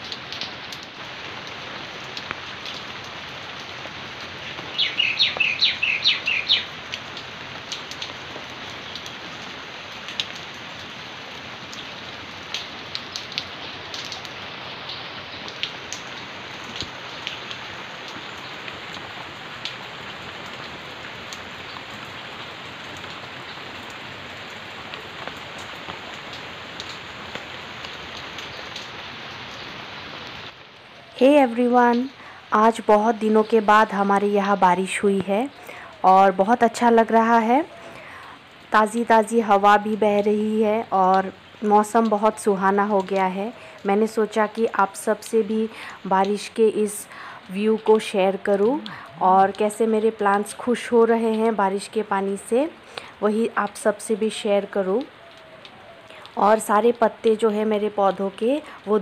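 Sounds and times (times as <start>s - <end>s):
rain falling on plants: 0.0s - 59.0s
water drips ticking: 0.0s - 59.0s
bird chirping rapidly: 4.7s - 6.7s.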